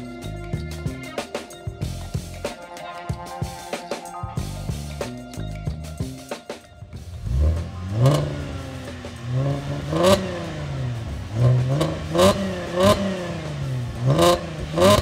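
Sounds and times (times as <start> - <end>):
car engine revving: 7.0 - 15.0.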